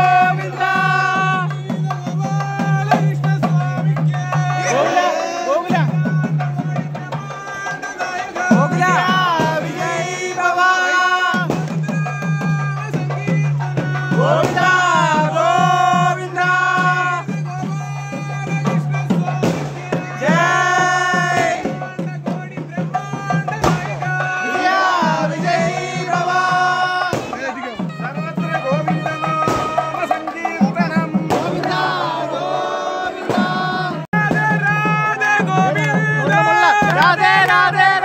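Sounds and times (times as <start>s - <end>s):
hand-drum strokes: 0.0s - 38.0s
double-reed pipe melody: 27.8s - 32.2s.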